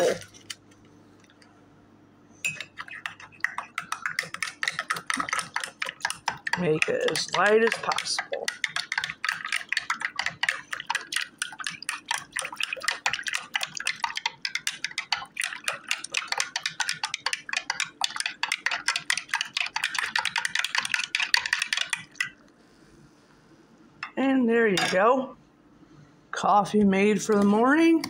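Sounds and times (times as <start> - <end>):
spoon clinking in ceramic mug: 2.4 - 5.4.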